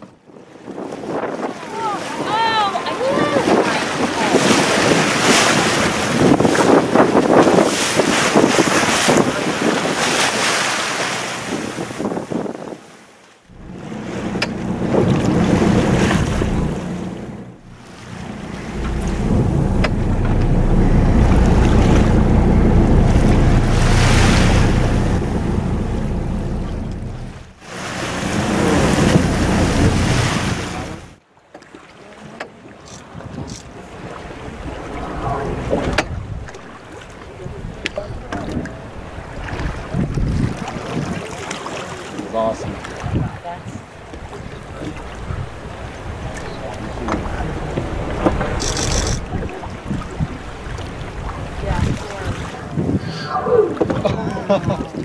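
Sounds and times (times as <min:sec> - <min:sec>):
wind noise on microphone: 0:00.0 - 0:10.7, 0:11.3 - 0:13.0, 0:13.6 - 0:31.0, 0:32.9 - 0:41.4, 0:42.6 - 0:55.0
waves washing: 0:00.6 - 0:55.0
heavy low rumble: 0:13.5 - 0:31.2, 0:33.6 - 0:40.9, 0:43.8 - 0:52.8.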